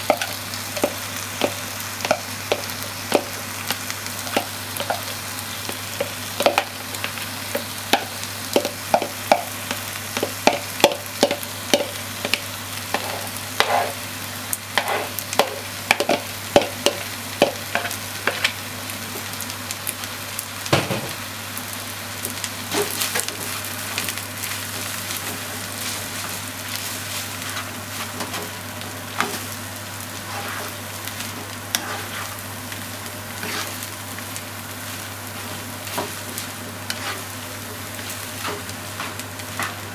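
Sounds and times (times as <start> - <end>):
rice sizzling in frying pan: 0.0 - 39.9
spatula tapping and scraping pan: 0.1 - 3.4, 4.3 - 6.8, 7.5 - 14.0, 14.8 - 18.5.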